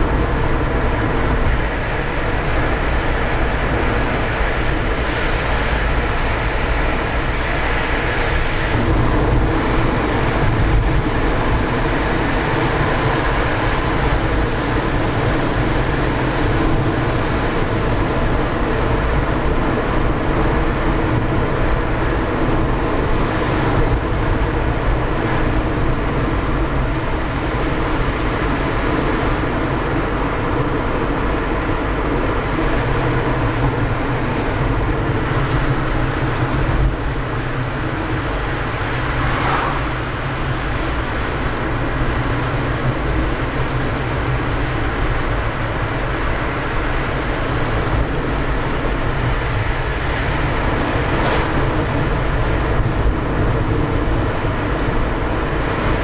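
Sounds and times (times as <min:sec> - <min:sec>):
car road and engine noise: 0:00.0 - 0:56.0.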